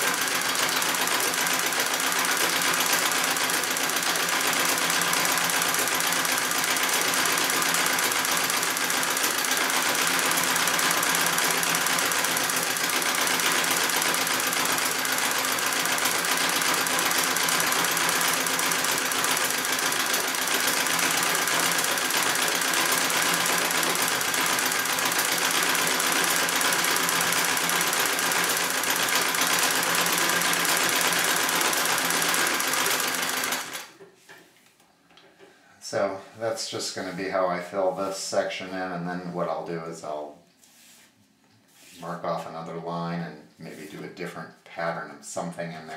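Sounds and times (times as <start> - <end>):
treadle sewing machine running: 0.0 - 34.0.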